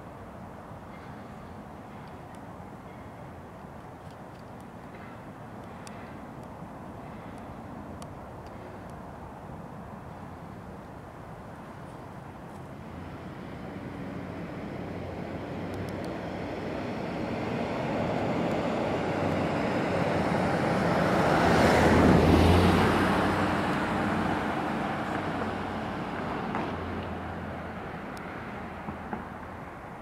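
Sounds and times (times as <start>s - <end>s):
car driving past: 12.9s - 29.4s.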